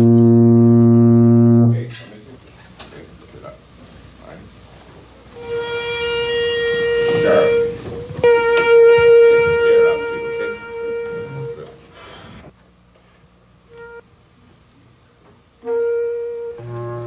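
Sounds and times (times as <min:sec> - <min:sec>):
wind instrument long note: 0:00.0 - 0:01.9, 0:05.4 - 0:11.8, 0:15.6 - 0:17.0.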